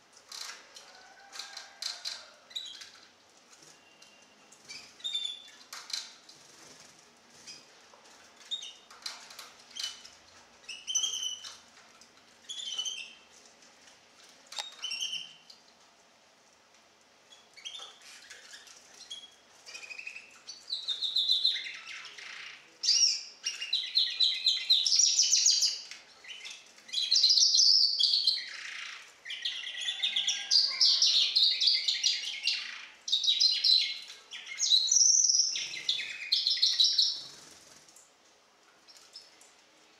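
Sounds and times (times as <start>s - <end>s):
bird chirping: 3.6s - 6.1s, 9.7s - 11.6s, 12.4s - 13.3s, 17.3s - 37.6s
fast twittering birdsong: 17.3s - 37.6s.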